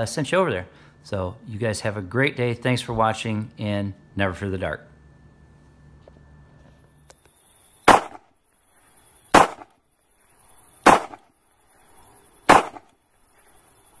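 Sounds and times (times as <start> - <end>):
sharp bangs with rushing lead-in: 7.9 - 8.2, 9.3 - 9.7, 10.8 - 11.3, 12.5 - 12.9.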